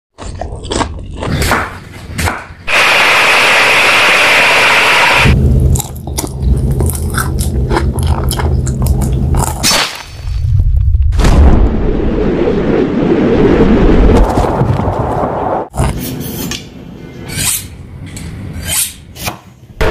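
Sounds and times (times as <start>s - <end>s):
steady low hum: 2.7s - 9.6s
chewing with wet clicks: 5.8s - 9.6s.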